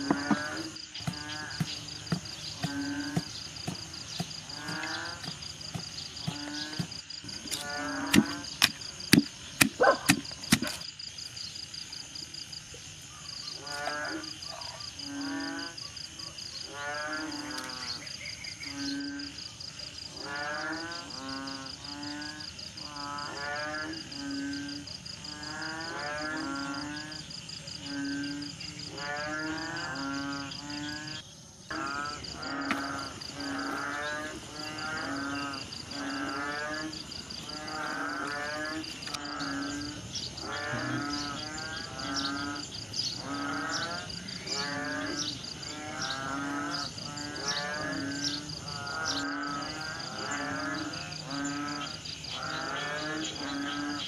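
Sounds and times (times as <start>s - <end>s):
pestle pounding in wooden mortar: 0.0s - 10.8s.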